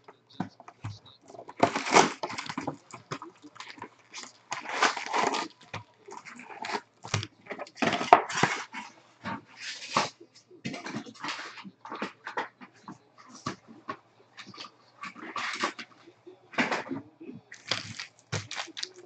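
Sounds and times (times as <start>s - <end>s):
foil packs rustling and crinkling: 0.0s - 12.6s, 17.5s - 19.0s
cardboard box tearing: 4.1s - 5.6s.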